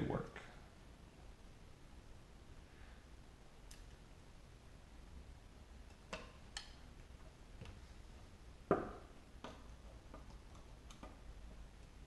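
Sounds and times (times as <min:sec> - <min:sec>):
clicks and taps of small parts: 0:09.4 - 0:11.2.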